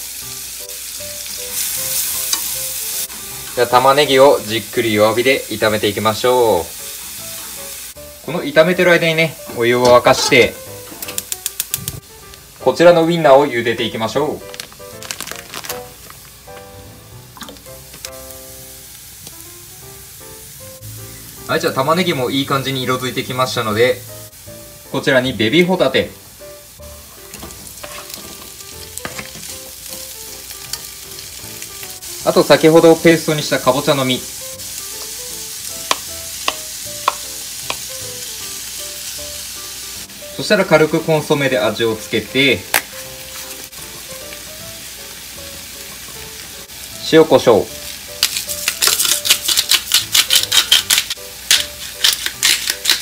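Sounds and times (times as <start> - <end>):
food sizzling in frying pan: 0.0 - 53.0
chopsticks clicking in pan: 11.0 - 12.4, 48.2 - 53.0
shaker rattling: 48.2 - 53.0.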